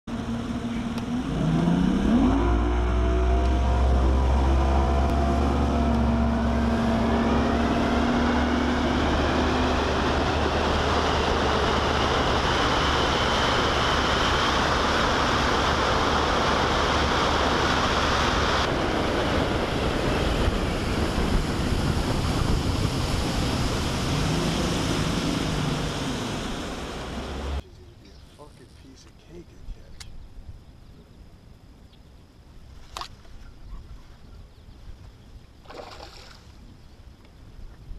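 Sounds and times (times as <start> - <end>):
outboard motor accelerating: 0.0 - 27.7, 35.5 - 36.7
wind and water rushing: 0.1 - 27.6, 35.5 - 36.8.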